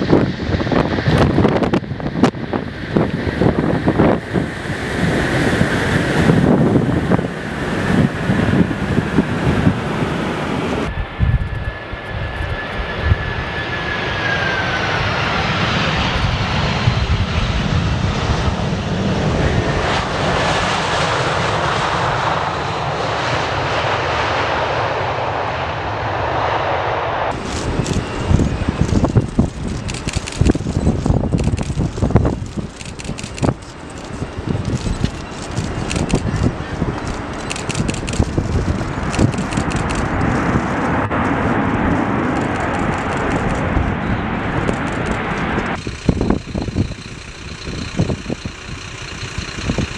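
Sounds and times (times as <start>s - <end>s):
engine roar: 0.0s - 49.9s
jet engines on runway: 0.0s - 49.9s
jet fan whine passing: 27.2s - 49.9s.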